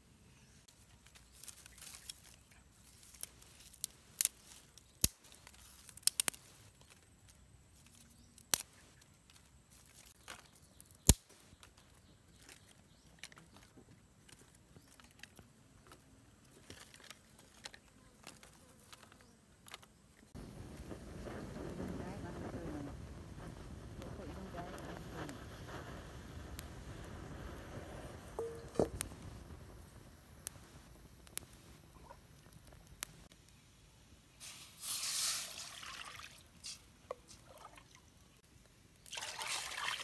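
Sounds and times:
dry twigs clicking and snapping: 0:00.7 - 0:20.0, 0:28.4 - 0:29.4, 0:30.2 - 0:33.6.

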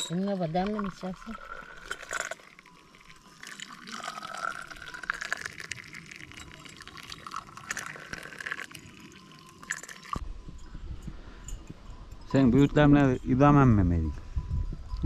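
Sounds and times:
small clinks: 0:00.0 - 0:15.0
tea pouring into a glass: 0:00.5 - 0:10.2.

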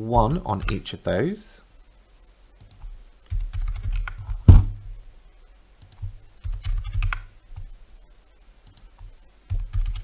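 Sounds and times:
keyboard keystrokes: 0:02.6 - 0:04.7, 0:05.8 - 0:07.7, 0:08.7 - 0:10.0.

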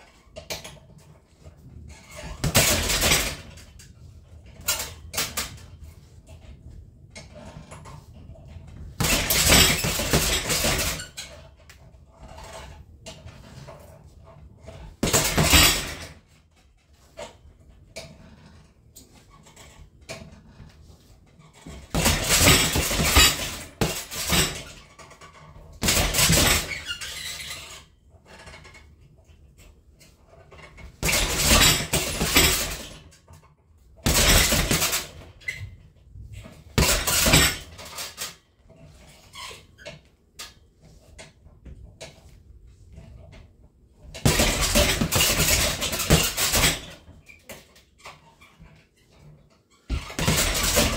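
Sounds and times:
punches on heavy bag: 0:02.4 - 0:03.4, 0:09.0 - 0:11.0, 0:15.0 - 0:16.2, 0:21.8 - 0:24.6, 0:25.8 - 0:26.8, 0:31.0 - 0:33.0, 0:34.0 - 0:35.2, 0:36.8 - 0:37.8, 0:44.2 - 0:47.0, 0:49.9 - 0:50.9.

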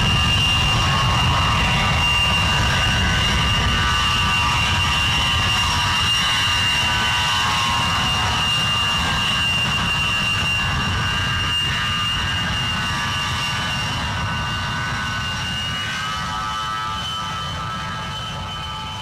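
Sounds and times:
jet engines whine and rumble: 0:00.0 - 0:19.0.

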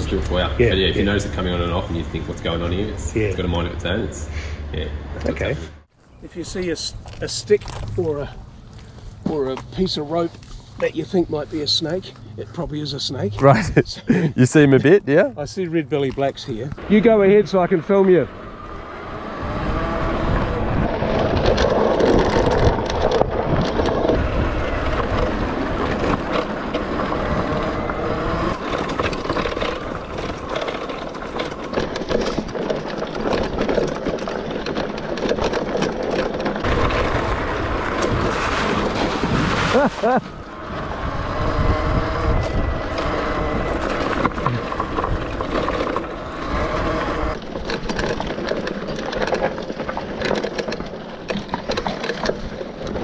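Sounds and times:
wind buffeting microphone: 0:18.3 - 0:33.8, 0:36.4 - 0:47.7
tyre rumble: 0:19.3 - 0:53.0
motorbike bumps: 0:20.1 - 0:53.0.

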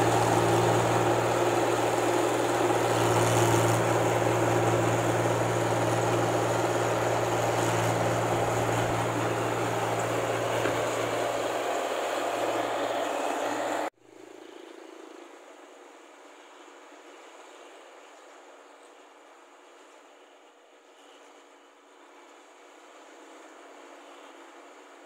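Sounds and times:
combine harvester engine droning: 0:00.0 - 0:13.9.

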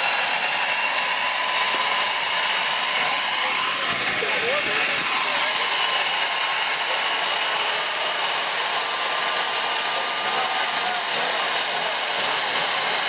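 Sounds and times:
jet engine rushing hiss and whine: 0:00.0 - 0:13.0.

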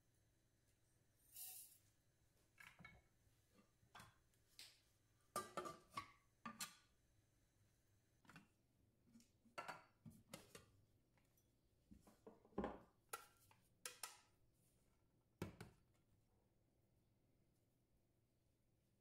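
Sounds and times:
kitchenware knocking and clicking: 0:05.4 - 0:06.8.

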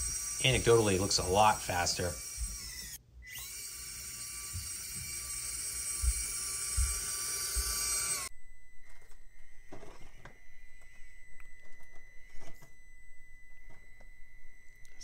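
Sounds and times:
electric motor whining: 0:00.0 - 0:15.0
low thumps: 0:05.9 - 0:14.4.

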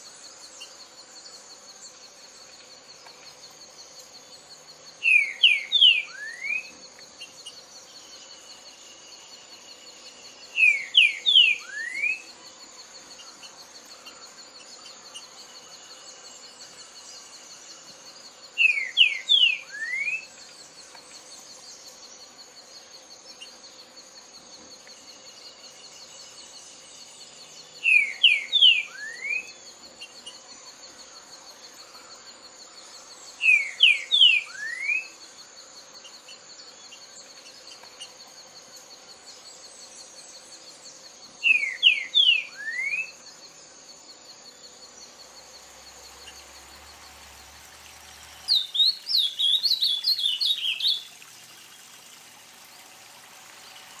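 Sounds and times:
bird singing whistled phrases: 0:05.0 - 0:06.7, 0:10.6 - 0:12.3, 0:18.6 - 0:20.3, 0:27.8 - 0:29.6, 0:33.4 - 0:35.1, 0:41.5 - 0:43.2, 0:48.5 - 0:51.1.

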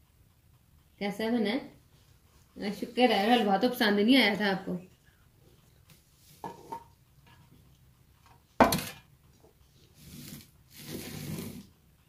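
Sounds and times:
dishes scraping on hard surface: 0:06.3 - 0:07.5.

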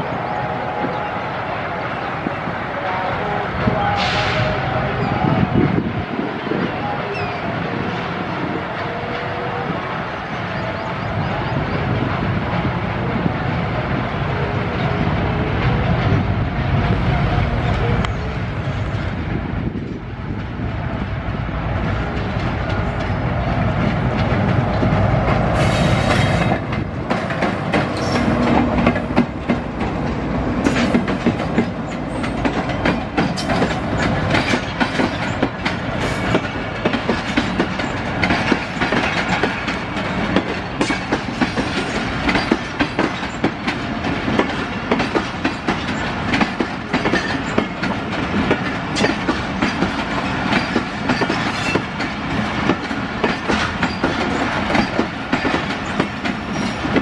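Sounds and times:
diesel locomotive engine: 0:00.0 - 0:57.0
train wheels clickety-clack: 0:21.8 - 0:57.0.

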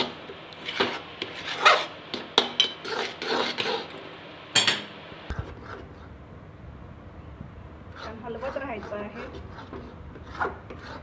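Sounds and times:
metal spatula scraping pan: 0:00.0 - 0:04.0.

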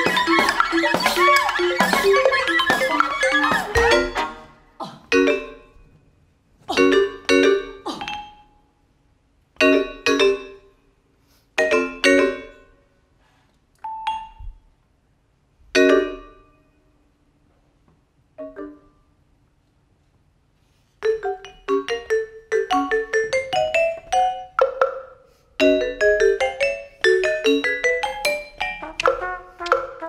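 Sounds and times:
vibraphone chords: 0:00.0 - 0:04.5, 0:05.1 - 0:05.8, 0:21.0 - 0:29.9.

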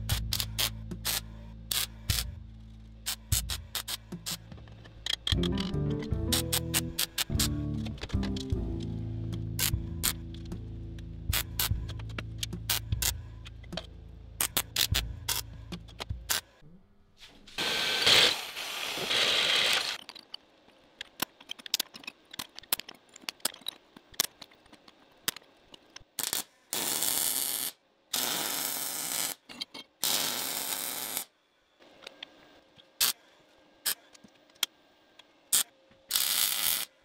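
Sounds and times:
sharp clicks and taps: 0:03.1 - 0:16.4
drill boring into steel: 0:17.6 - 0:20.0
welding crackle: 0:17.6 - 0:20.0, 0:36.1 - 0:36.9.

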